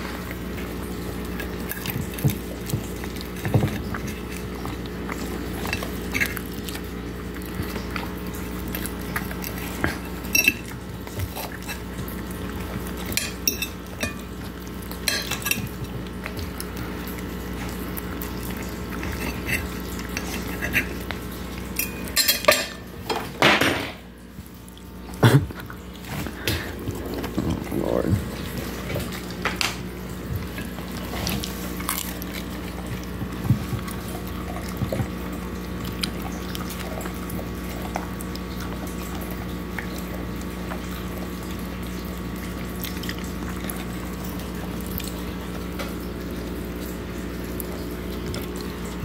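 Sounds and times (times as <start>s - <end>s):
dog eating: 0.0s - 49.0s
fork scraping ceramic plate: 19.1s - 21.0s.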